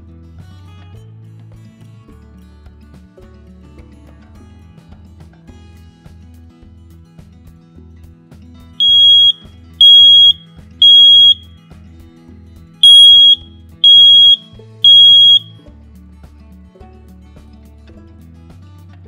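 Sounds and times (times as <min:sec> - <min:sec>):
smoke alarm beeping: 0:08.8 - 0:11.5, 0:12.8 - 0:15.6.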